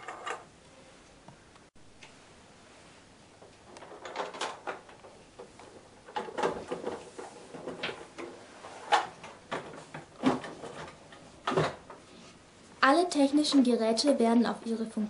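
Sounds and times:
plastic boxes rattling and knocking: 3.6s - 12.0s.

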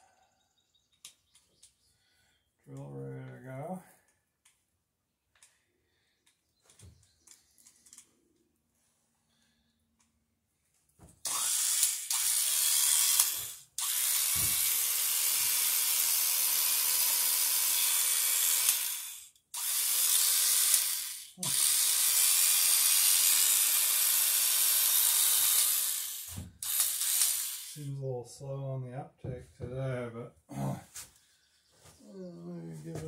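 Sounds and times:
electric drill boring wood: 11.2s - 27.9s.

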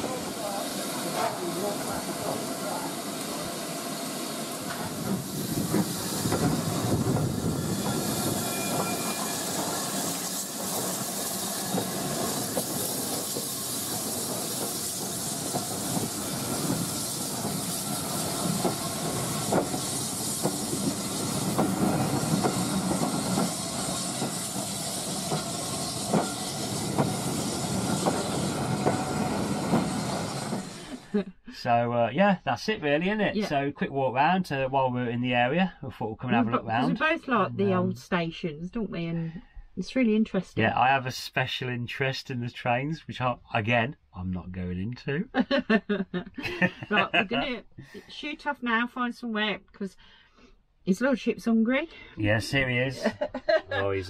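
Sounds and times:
steam hissing: 0.0s - 31.2s
train coaches rolling by: 0.0s - 31.2s.

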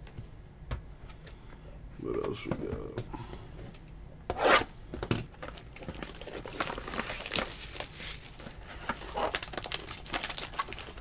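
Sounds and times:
foil crinkling: 5.4s - 11.0s.

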